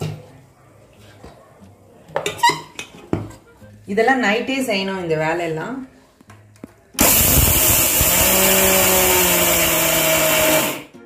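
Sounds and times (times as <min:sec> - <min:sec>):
mixer grinder motor running: 0:07.0 - 0:10.9.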